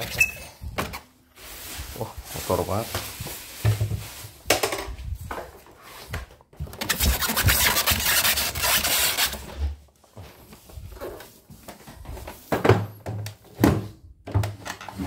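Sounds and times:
styrofoam and cardboard scraping: 0:00.0 - 0:04.4, 0:06.8 - 0:09.8.

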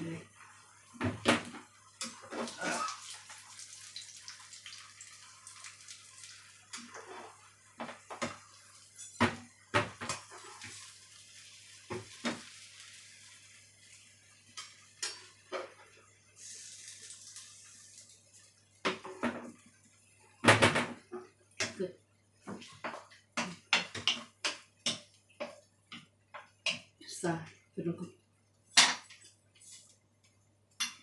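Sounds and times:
omelet sizzling in oil: 0:00.2 - 0:20.0
metal spatula scraping pans: 0:06.7 - 0:08.4.

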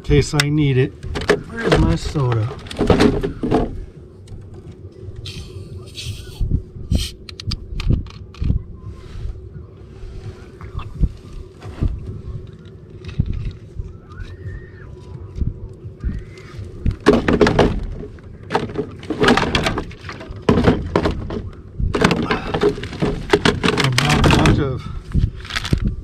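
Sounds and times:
wind buffeting microphone: 0:00.0 - 0:18.5, 0:19.4 - 0:26.0
dull thumps: 0:01.0 - 0:03.9, 0:15.4 - 0:24.7
gear rustling and knocking in boat: 0:01.0 - 0:04.7, 0:11.6 - 0:26.0.

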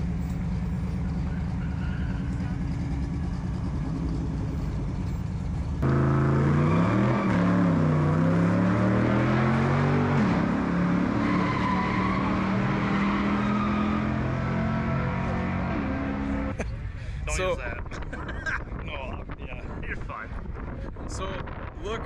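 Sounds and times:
car engine revving: 0:05.8 - 0:16.6.

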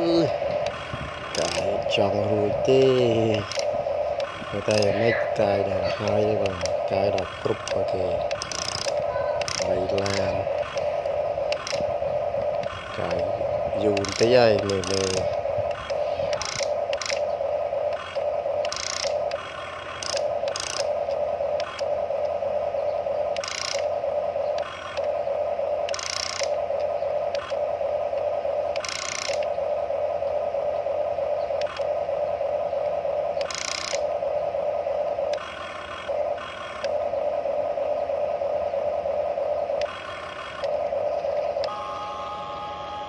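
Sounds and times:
toy excavator motors whirring: 0:00.0 - 0:17.3, 0:17.9 - 0:21.9, 0:23.3 - 0:23.9, 0:24.5 - 0:25.2, 0:25.8 - 0:27.6, 0:28.7 - 0:29.5, 0:33.4 - 0:34.1, 0:35.3 - 0:37.0, 0:39.8 - 0:40.9.

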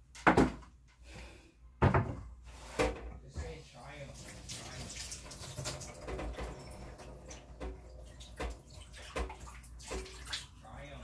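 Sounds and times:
knocks and clatters in sink: 0:00.0 - 0:00.7, 0:01.8 - 0:03.5, 0:04.1 - 0:10.6
tap water running into sink: 0:04.0 - 0:10.6.

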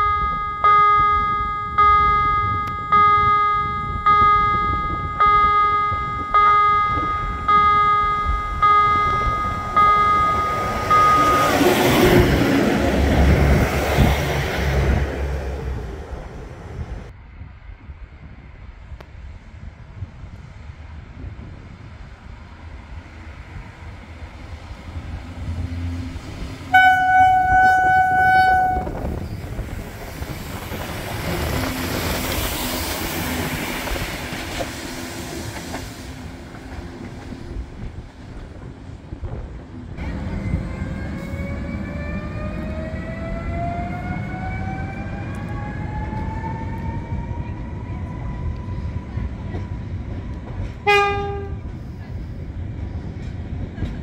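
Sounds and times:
electric train traction whine: 0:00.0 - 0:17.1, 0:39.3 - 0:51.6
diesel railcar rolling past: 0:00.0 - 0:54.0
train horn blast: 0:26.7 - 0:29.2, 0:50.8 - 0:51.7.

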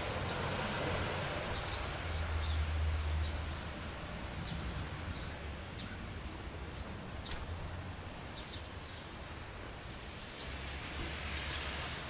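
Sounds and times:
small birds chirping: 0:01.5 - 0:03.7, 0:04.4 - 0:07.6, 0:08.2 - 0:09.4.

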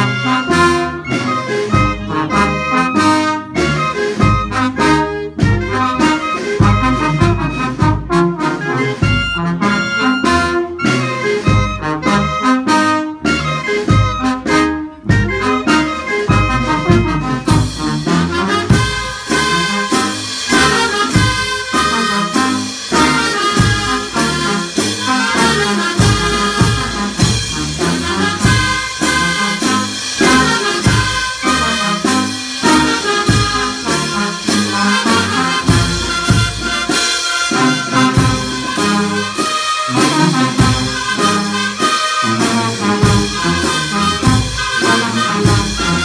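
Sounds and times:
brass band playing dance tune: 0:00.0 - 0:46.0.

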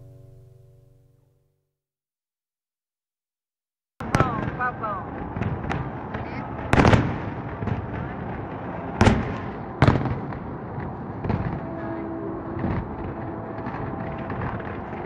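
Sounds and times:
background rumble: 0:04.0 - 0:15.0
fireworks bangs: 0:04.0 - 0:15.0.

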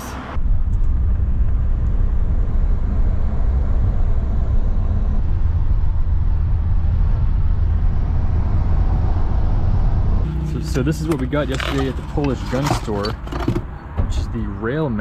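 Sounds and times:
road rumble: 0:00.0 - 0:15.0
wind noise through open window: 0:00.4 - 0:10.3.

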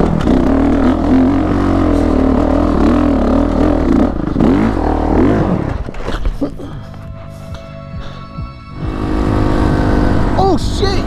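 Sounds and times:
motorcycle engine revving hard: 0:00.0 - 0:05.9, 0:08.8 - 0:10.8.

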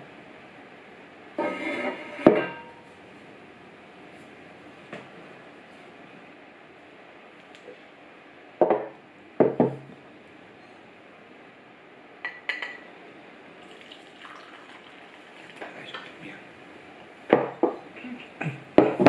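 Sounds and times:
dishes knocking on wooden table: 0:08.6 - 0:09.8
tea pouring into a cup: 0:13.6 - 0:16.2.

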